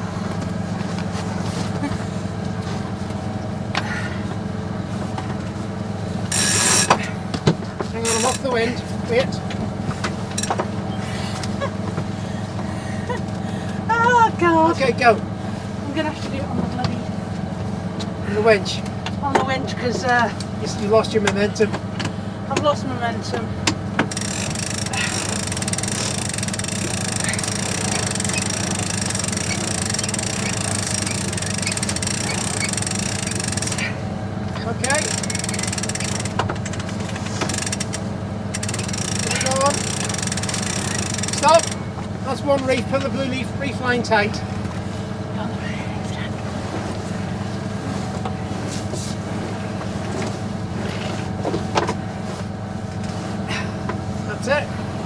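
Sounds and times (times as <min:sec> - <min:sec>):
diesel engine running: 0:00.0 - 0:55.0
short squeaks: 0:24.1 - 0:33.9, 0:35.0 - 0:37.9, 0:38.6 - 0:41.8
winch clicking rapidly: 0:24.1 - 0:33.9, 0:34.8 - 0:41.8.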